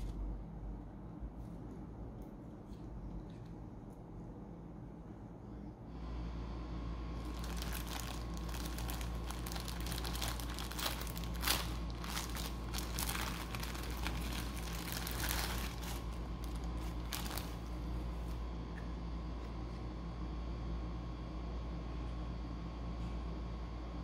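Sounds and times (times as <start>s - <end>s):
steady low hum: 0.0s - 24.0s
plastic bag crinkling: 7.2s - 18.4s.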